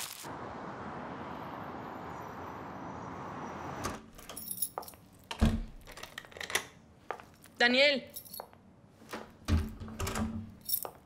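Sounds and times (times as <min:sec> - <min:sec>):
city traffic hum: 0:00.0 - 0:11.0
keys jangling in a door lock: 0:04.2 - 0:06.7, 0:08.1 - 0:08.6, 0:10.0 - 0:11.0.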